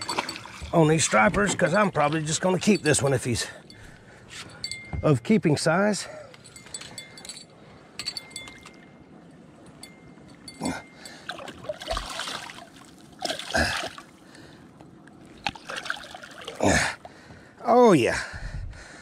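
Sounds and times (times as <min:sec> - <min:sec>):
fish splashing in water: 0:11.3 - 0:14.2, 0:15.4 - 0:16.6.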